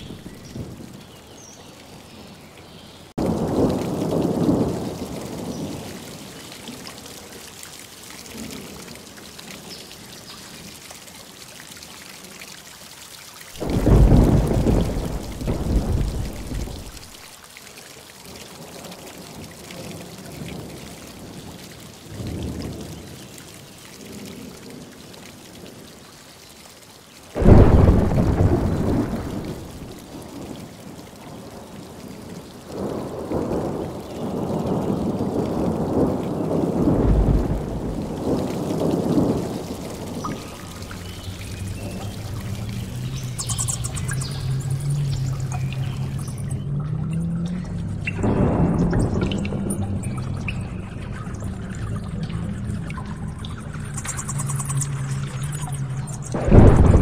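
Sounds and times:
thunder claps and rumbles: 0.0s - 1.0s, 3.1s - 7.0s, 13.6s - 17.2s, 18.8s - 23.1s, 27.4s - 57.0s
steady rain: 0.0s - 57.0s.

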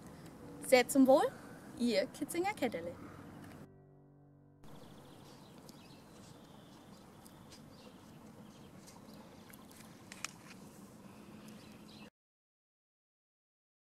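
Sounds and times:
low hum: 0.0s - 12.1s
bird chirps: 4.6s - 9.8s, 11.4s - 12.1s.

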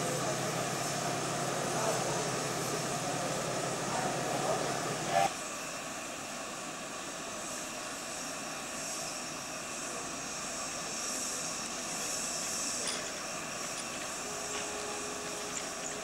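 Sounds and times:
steam hissing: 0.0s - 16.0s.

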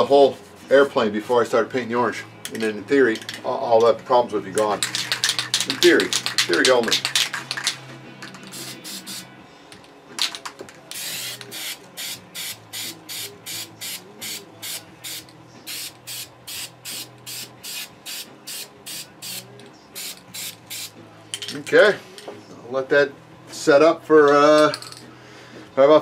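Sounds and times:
spray paint can hissing: 4.8s - 7.8s, 8.5s - 9.3s, 10.9s - 19.4s.

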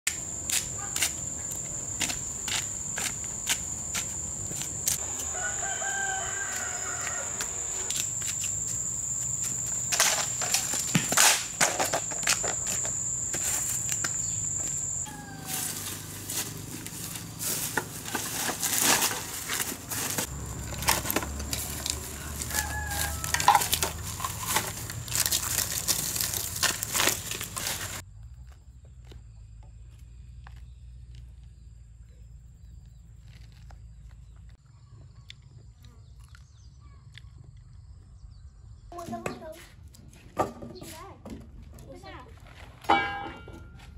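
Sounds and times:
high-pitched whine: 1.4s - 17.3s
rooster crowing: 5.0s - 8.2s, 14.8s - 16.1s, 21.6s - 24.2s.

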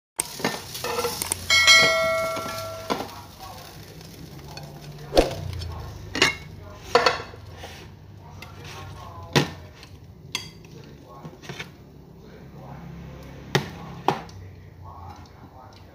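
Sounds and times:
metal utensils clinking on plates: 0.2s - 3.3s, 4.5s - 7.4s
metallic clang ringing: 0.8s - 3.1s.

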